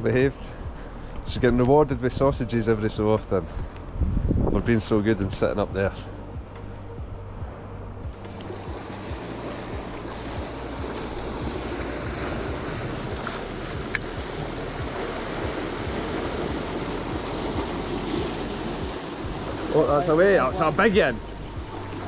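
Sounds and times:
wind buffeting microphone: 0:00.6 - 0:22.0
surf washing against rocks: 0:08.2 - 0:22.0.

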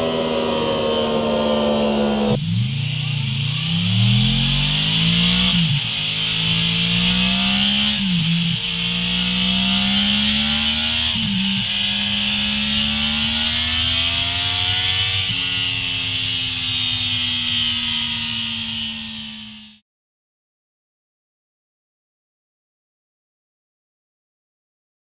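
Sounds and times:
motorcycle engine accelerating: 0:00.0 - 0:19.8.

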